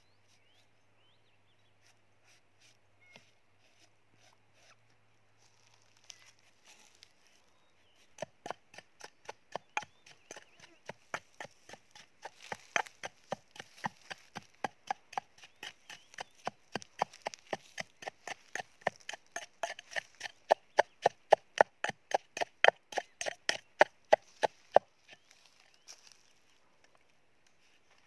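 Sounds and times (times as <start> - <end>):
wooden pestle pounding in metal bowl: 8.1 - 25.3.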